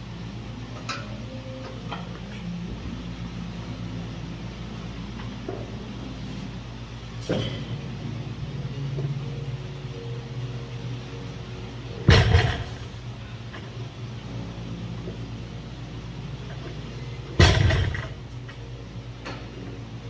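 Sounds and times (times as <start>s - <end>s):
low hum: 0.0s - 20.0s
barbell dropped on rubber floor: 12.1s - 12.8s, 17.4s - 18.1s.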